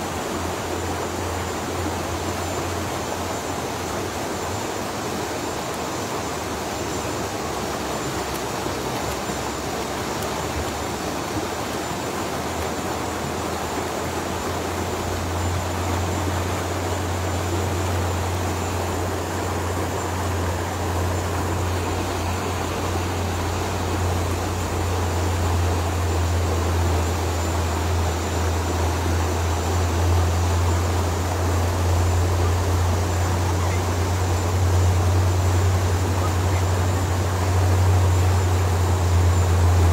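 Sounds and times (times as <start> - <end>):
stream flowing over stones: 0.0 - 39.9.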